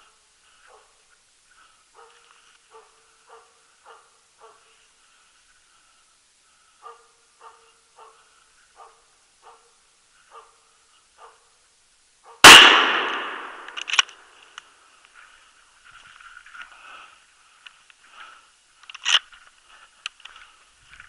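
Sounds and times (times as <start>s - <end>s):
faint dog barking: 0.1s - 1.0s, 1.9s - 4.9s, 6.6s - 11.6s, 12.2s - 12.4s
rifle shot: 12.4s - 14.1s.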